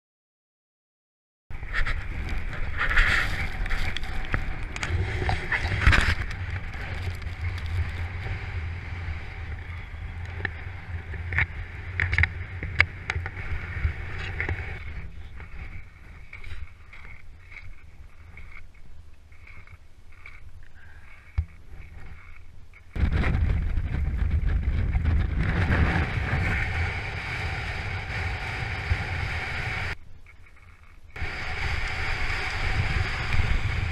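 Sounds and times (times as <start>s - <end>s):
wind buffeting microphone: 1.5s - 20.4s, 21.4s - 30.0s, 31.2s - 33.9s
skis hissing on snow: 31.2s - 33.9s.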